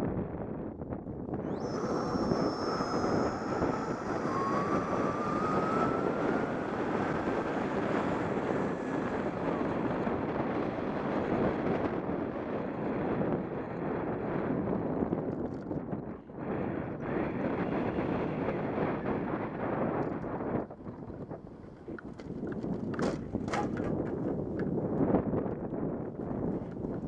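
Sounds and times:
wind buffeting microphone: 0.0s - 27.0s
electric motor whine: 1.3s - 13.0s.

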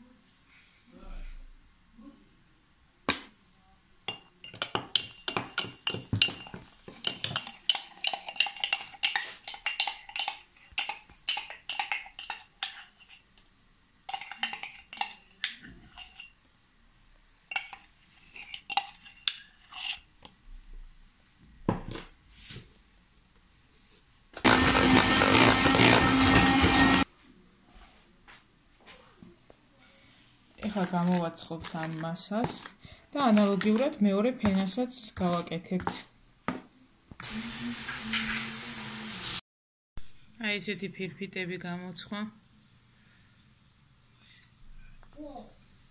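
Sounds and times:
metal spoon clinking against glass: 4.1s - 13.2s.

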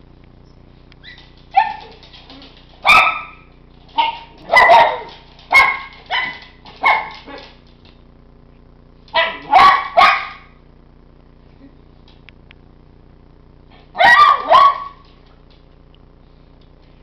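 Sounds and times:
dogs barking: 2.8s - 7.6s, 9.2s - 10.5s, 14.0s - 15.1s.

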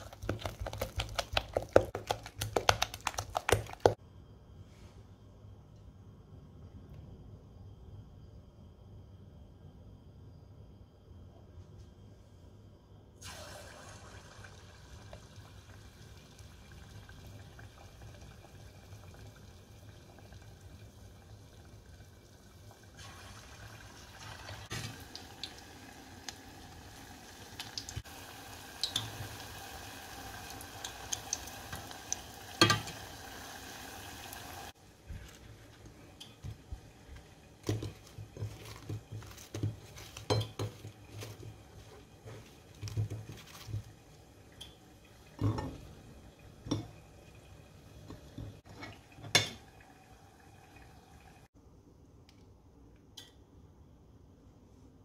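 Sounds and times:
hot oil sizzling: 13.2s - 34.8s.

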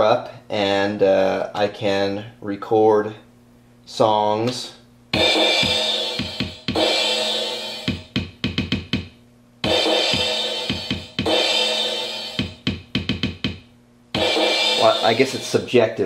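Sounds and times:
drum machine pattern: 5.2s - 13.6s, 14.2s - 15.8s.

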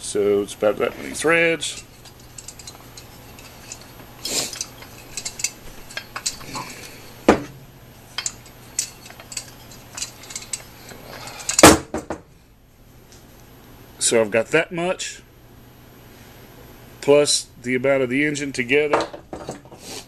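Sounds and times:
metal parts clattering: 1.1s - 11.8s
metal parts clinking on workbench: 1.6s - 7.5s, 8.1s - 11.8s.

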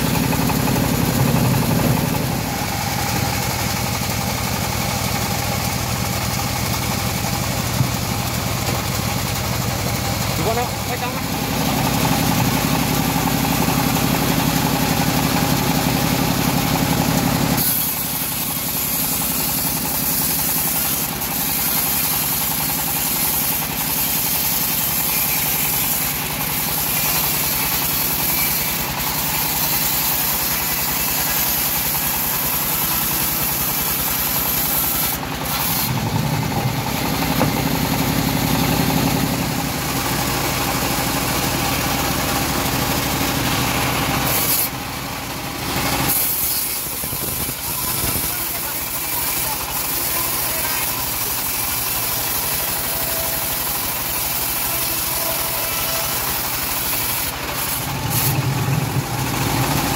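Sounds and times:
saw mill drone: 0.0s - 59.9s
saw blade hissing through wood: 11.2s - 36.0s, 43.0s - 44.8s, 45.8s - 59.9s.

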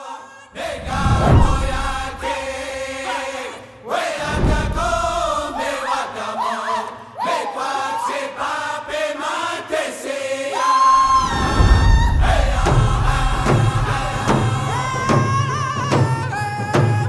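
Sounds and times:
group singing sliding chants: 0.0s - 17.0s
big drum beating: 0.6s - 2.6s, 4.3s - 5.6s, 11.4s - 17.0s.

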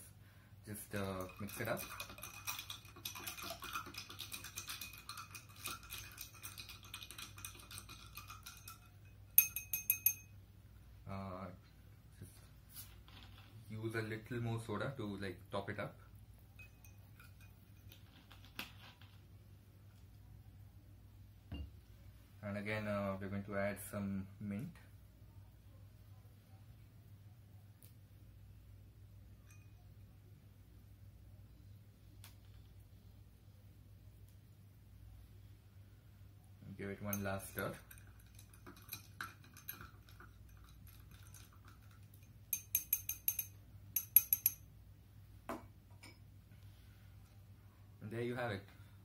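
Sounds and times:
ice clinking against a glass: 0.9s - 10.3s, 16.5s - 18.0s, 29.4s - 29.8s, 37.1s - 44.7s.

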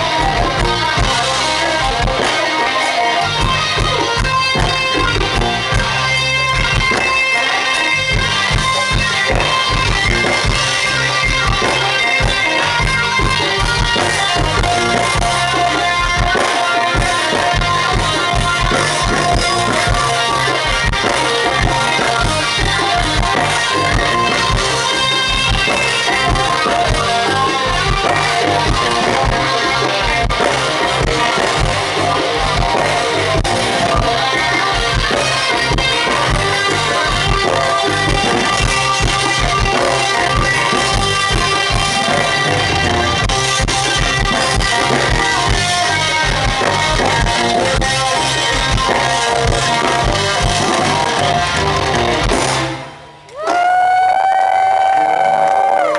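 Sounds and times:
bass guitar: 0.0s - 55.9s
drum kit: 0.0s - 55.9s
electric lead guitar: 0.0s - 55.9s.

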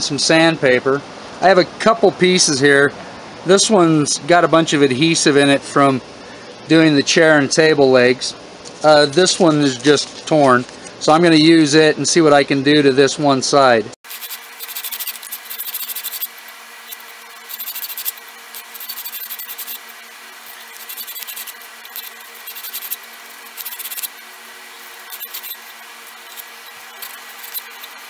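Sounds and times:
sandpaper rasping on wood: 14.1s - 28.0s.

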